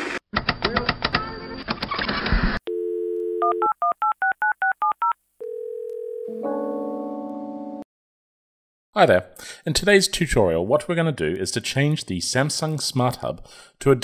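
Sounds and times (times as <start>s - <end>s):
telephone dial tone: 2.7s - 4.0s, 4.8s - 6.6s.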